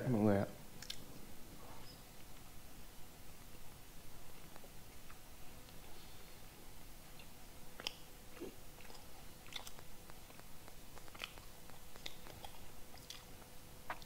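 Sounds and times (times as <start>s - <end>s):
mouth clicks: 0.8s - 1.1s, 7.2s - 14.0s
person chewing dry cake: 0.8s - 1.1s, 7.1s - 14.0s.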